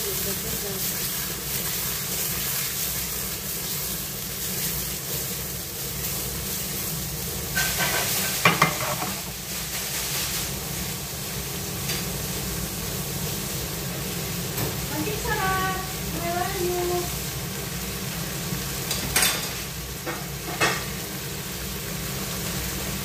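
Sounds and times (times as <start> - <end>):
shrimp sizzling in oil: 0.0 - 23.0
pan clattering and scraping: 7.6 - 9.3.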